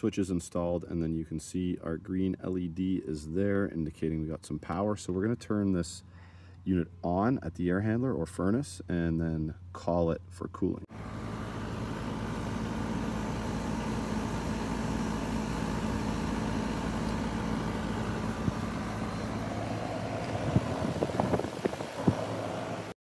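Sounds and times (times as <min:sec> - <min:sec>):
air conditioner unit humming: 0:08.5 - 0:23.0.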